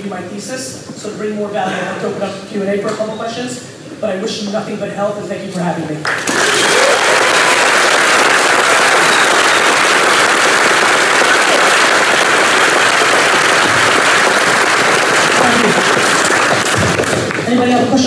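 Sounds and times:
audience applauding: 0:06.0 - 0:17.6.

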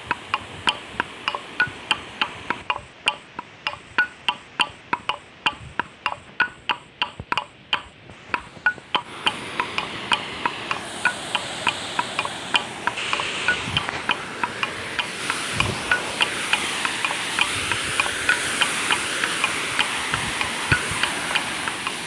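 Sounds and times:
waterfall rushing: 0:00.0 - 0:02.7, 0:08.1 - 0:22.0
woodblock-like music beat: 0:00.0 - 0:22.0.

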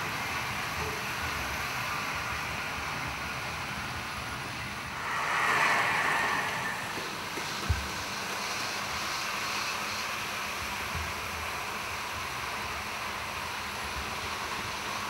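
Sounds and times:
model trains rolling on track: 0:00.0 - 0:15.0.

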